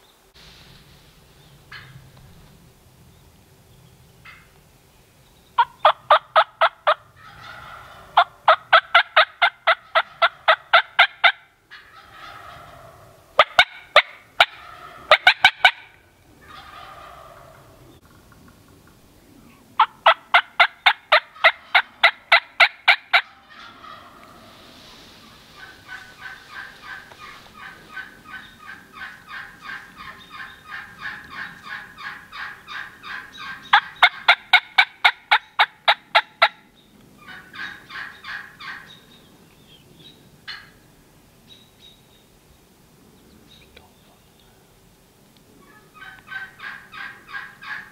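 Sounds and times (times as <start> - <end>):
turkey calling: 1.7 - 2.3, 4.2 - 4.6, 5.6 - 19.0, 19.8 - 40.9, 45.6 - 47.9.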